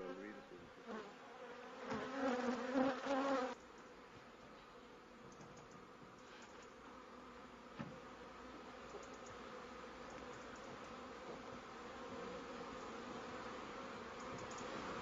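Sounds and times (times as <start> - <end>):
faint ticks: 5.3 - 6.8, 8.8 - 9.4, 10.1 - 11.0, 14.2 - 14.8
insect-like buzzing drone: 8.1 - 15.0
faint hiss: 10.0 - 15.0.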